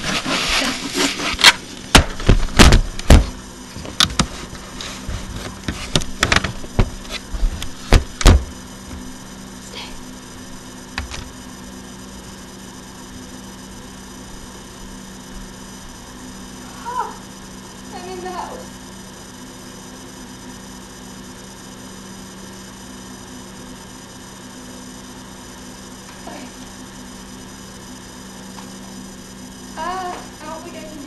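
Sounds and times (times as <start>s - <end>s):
steady low hum: 0.0s - 31.0s
webcam handling knocks and bumps: 5.6s - 7.2s, 7.9s - 8.5s.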